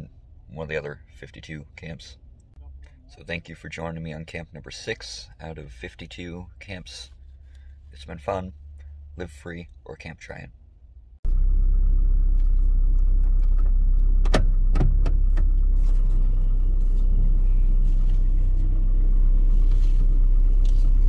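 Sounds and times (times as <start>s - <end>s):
truck engine rumbling: 10.6s - 21.0s.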